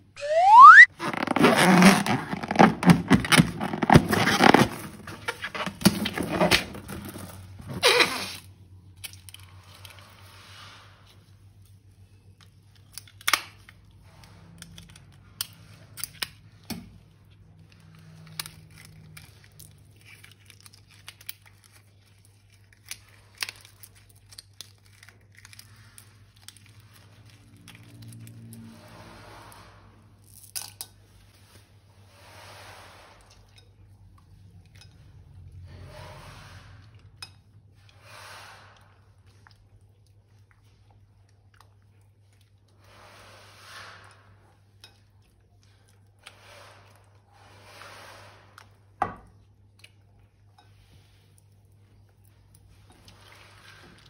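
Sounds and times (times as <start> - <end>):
crinkling and tearing rubber: 0.2 - 10.1.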